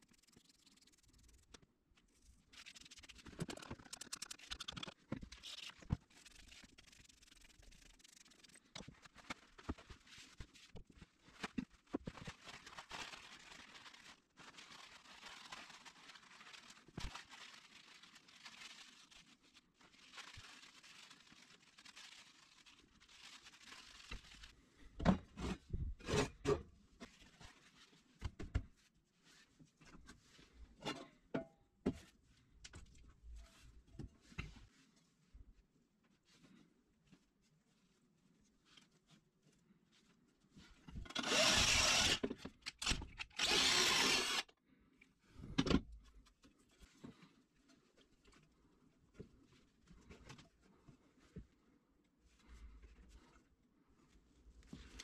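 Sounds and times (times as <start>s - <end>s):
paper towel rustling: 5.4s - 24.9s.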